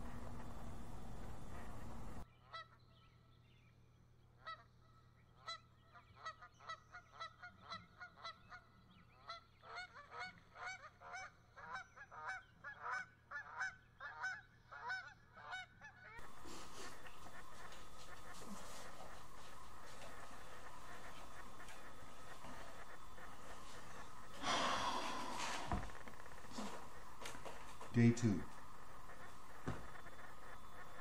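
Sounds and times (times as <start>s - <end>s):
geese honking in flight: 6.2s - 27.8s, 28.4s - 31.0s
steady hiss: 16.2s - 31.0s.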